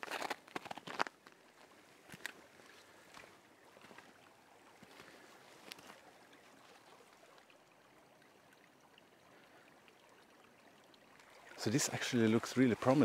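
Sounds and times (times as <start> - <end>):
faint footsteps: 0.0 - 6.8
stream flowing: 1.0 - 13.0.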